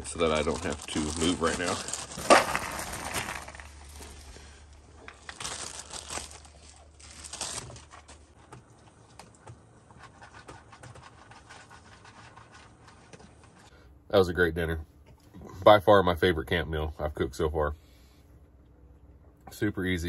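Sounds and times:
dry kibble pouring into bowl: 0.4s - 3.8s.

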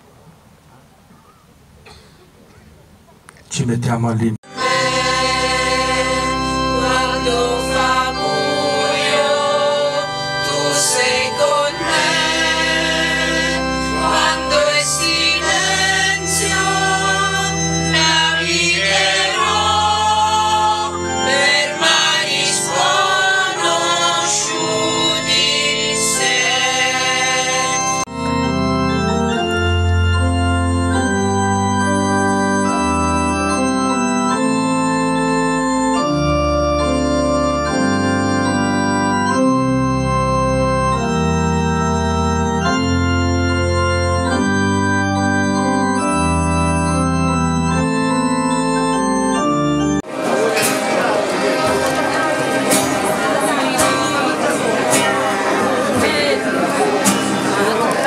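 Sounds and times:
organ chords: 0.0s - 58.0s
people singing a hymn: 4.5s - 28.1s, 50.1s - 58.0s.

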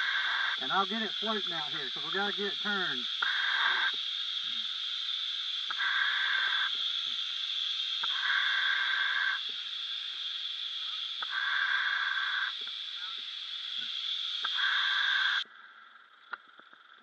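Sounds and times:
scuba regulator inhalation hiss: 0.0s - 15.4s
steady high hiss: 0.0s - 17.0s.

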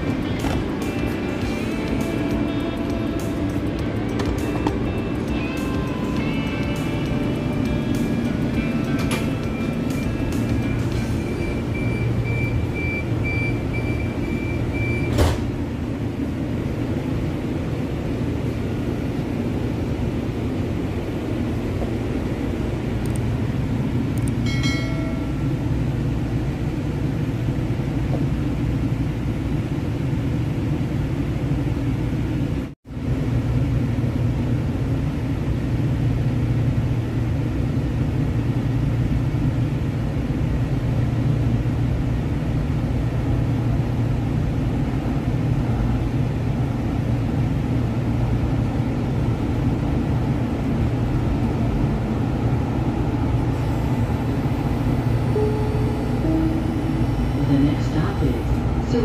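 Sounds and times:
train rumbling on tracks: 0.0s - 59.0s
thin high tone: 53.6s - 57.9s
ringing cluster of tones: 55.1s - 57.4s.

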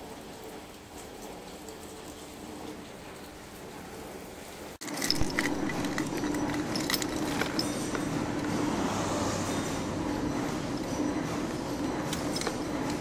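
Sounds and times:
keys jangling: 4.8s - 8.6s, 10.9s - 13.0s.

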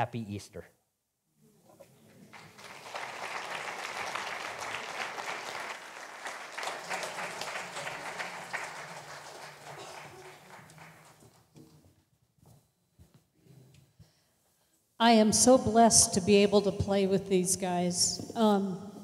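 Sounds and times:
congregation applauding: 2.1s - 11.6s.

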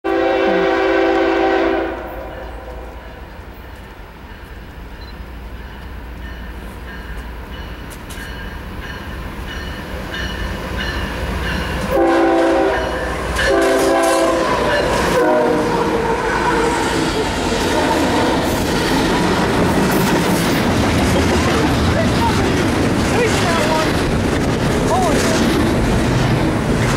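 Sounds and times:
locomotive horn blasts: 0.0s - 3.2s, 11.9s - 16.0s
train rumbling: 0.1s - 26.9s
train cars clickety-clack: 1.1s - 26.9s.

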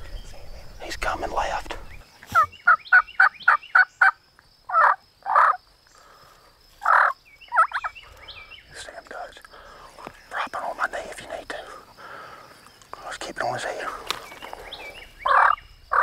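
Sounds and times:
turkey yelping: 2.3s - 5.6s, 6.8s - 7.9s, 15.2s - 16.0s.

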